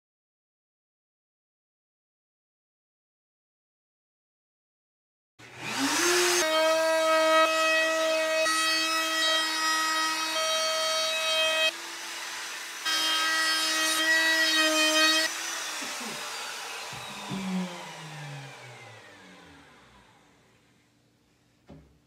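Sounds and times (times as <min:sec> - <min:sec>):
trim router whining: 0:05.4 - 0:20.9
knock: 0:21.7 - 0:22.0.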